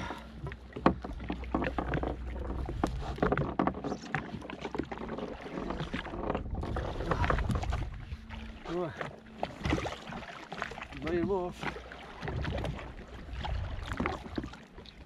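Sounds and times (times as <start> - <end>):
knocks and clicks handling fish: 0.2 - 8.0
low steady rumble: 5.0 - 11.1.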